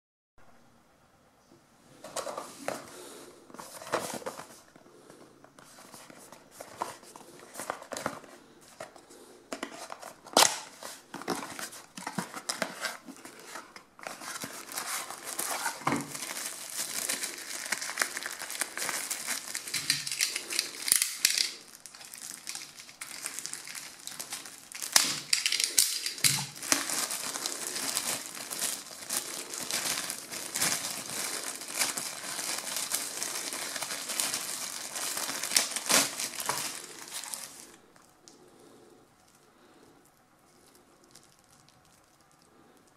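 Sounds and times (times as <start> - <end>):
plastic bag crinkling: 9.8 - 38.1, 40.1 - 42.9.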